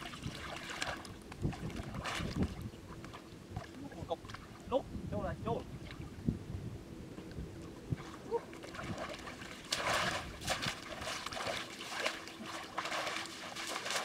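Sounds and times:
wading splashes in floodwater: 0:00.0 - 0:04.8, 0:07.8 - 0:14.0
cast net dragged through water: 0:08.0 - 0:14.0.

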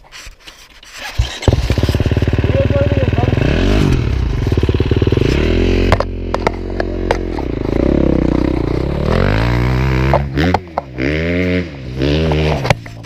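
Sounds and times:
dirt bike engine idling: 0:01.2 - 0:13.0
sharp clicks and knocks: 0:05.9 - 0:07.5.

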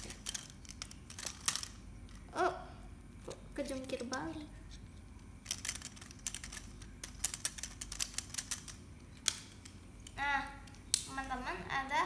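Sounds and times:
plastic bricks clicking and rattling: 0:00.0 - 0:01.8, 0:05.4 - 0:10.8.

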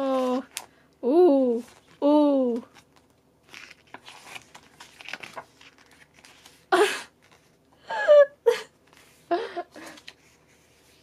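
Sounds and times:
pages rustling and sliding: 0:00.0 - 0:00.7, 0:01.6 - 0:02.0, 0:02.6 - 0:07.6, 0:08.8 - 0:11.0.

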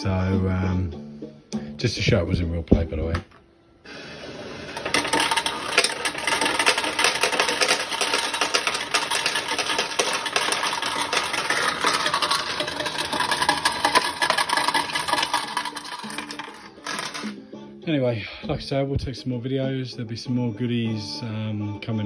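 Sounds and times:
coins clattering into tray: 0:04.6 - 0:17.4.

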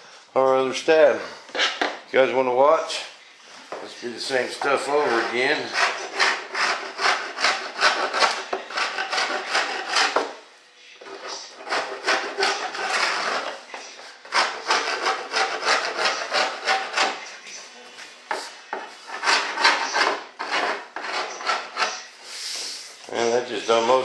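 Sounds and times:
hand file rasping: 0:04.6 - 0:10.3, 0:11.0 - 0:17.3, 0:19.0 - 0:22.1.

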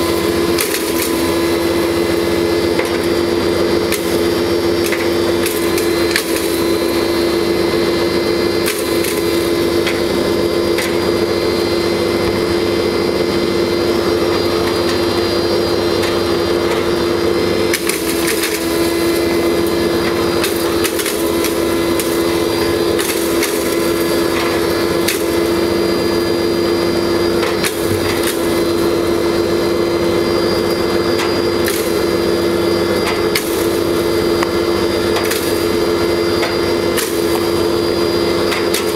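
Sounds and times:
grinder humming: 0:00.0 - 0:38.9.

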